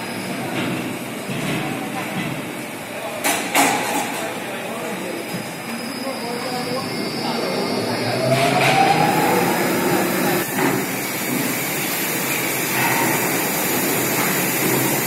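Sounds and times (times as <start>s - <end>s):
machinery running: 5.8s - 15.0s.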